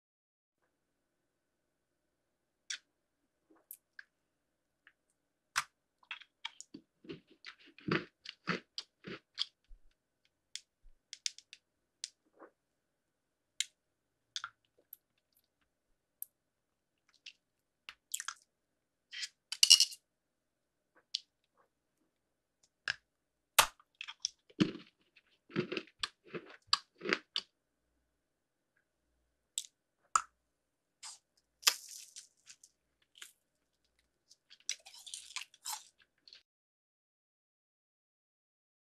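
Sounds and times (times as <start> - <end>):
chewing crunchy candy: 6.0 - 9.8, 23.6 - 27.5, 31.0 - 36.4.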